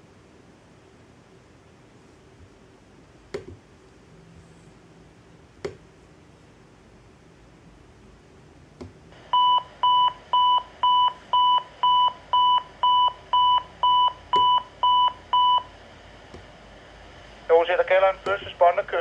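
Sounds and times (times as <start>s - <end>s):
radio scanner click: 18.1s - 18.6s.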